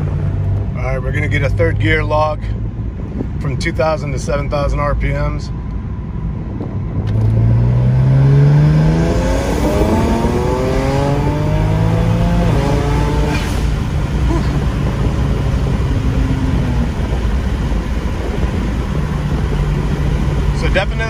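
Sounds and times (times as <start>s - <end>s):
car engine accelerating: 5.6s - 21.0s.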